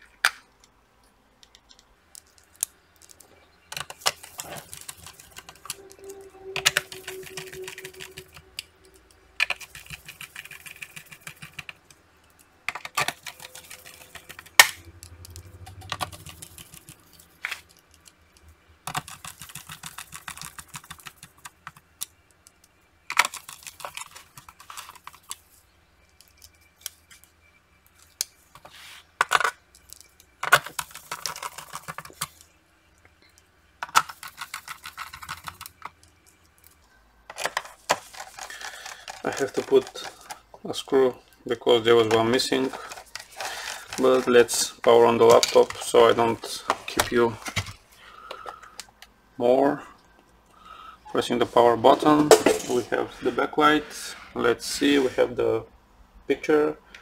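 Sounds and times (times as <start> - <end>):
scraping and rattling handling: 52.1 - 53.0.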